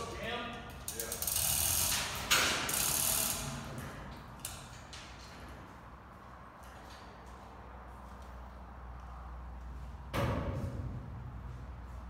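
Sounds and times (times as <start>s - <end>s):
hand chain rattling through hoist: 0.8s - 3.7s
hoist mechanism ratcheting: 0.9s - 4.8s.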